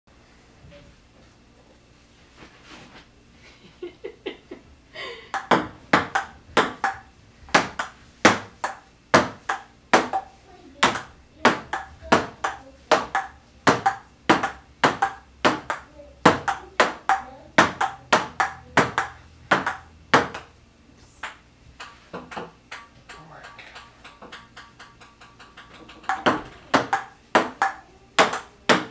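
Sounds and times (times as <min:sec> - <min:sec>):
table tennis ball clicking: 0:05.4 - 0:20.5, 0:21.2 - 0:28.9.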